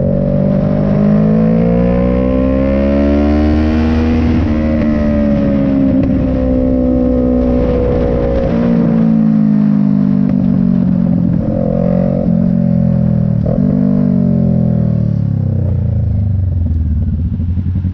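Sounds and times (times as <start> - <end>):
motorcycle engine slowing down: 4.2 - 17.9.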